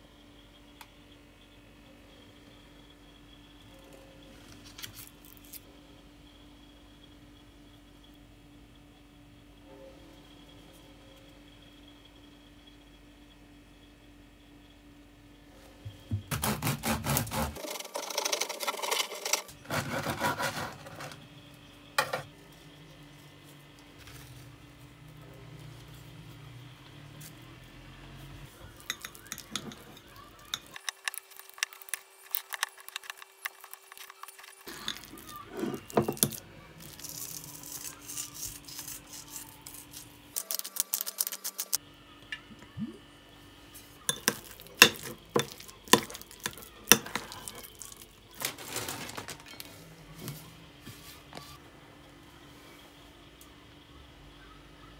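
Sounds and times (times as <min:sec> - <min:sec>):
utensils and dishes clinking: 0:28.7 - 0:41.8, 0:44.1 - 0:49.8.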